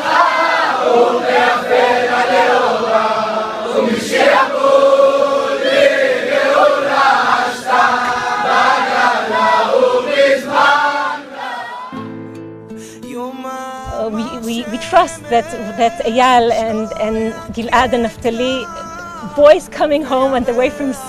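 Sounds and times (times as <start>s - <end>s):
men singing a prayer melody: 0.0s - 11.9s, 13.1s - 16.3s
instrumental music: 7.0s - 21.0s.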